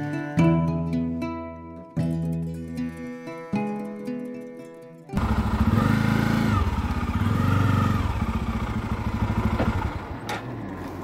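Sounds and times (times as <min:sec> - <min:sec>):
motorcycle engine puttering: 0:03.6 - 0:11.0.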